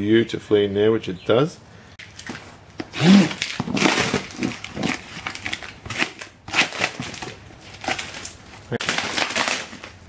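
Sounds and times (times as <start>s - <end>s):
plastic wrapping crinkling: 2.0s - 10.0s
packing tape ripping: 2.1s - 10.0s.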